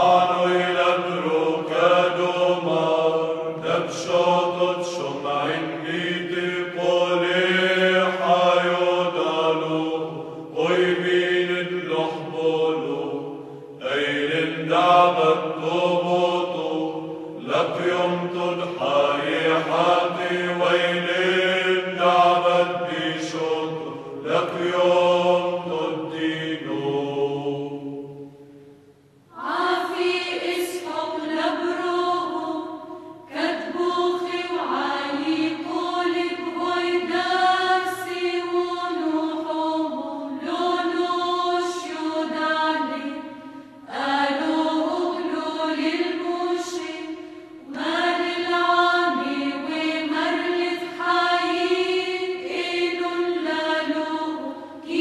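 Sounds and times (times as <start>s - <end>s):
hymn chanting: 0.0s - 28.3s.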